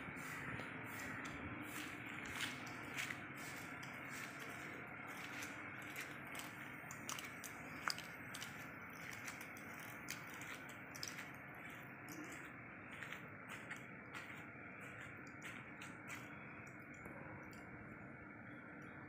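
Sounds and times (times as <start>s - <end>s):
faint background hum: 0.0s - 19.0s.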